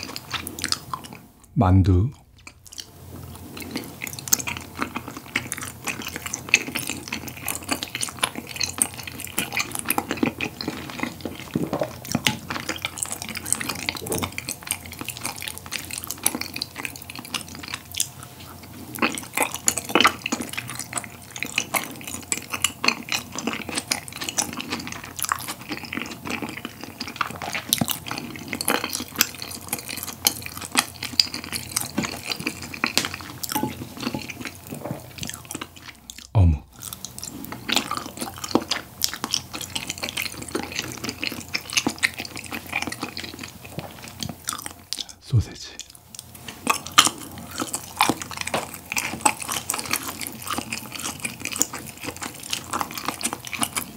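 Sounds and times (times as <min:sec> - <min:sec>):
wet sticky chewing: 0:00.0 - 0:01.5, 0:02.1 - 0:53.9.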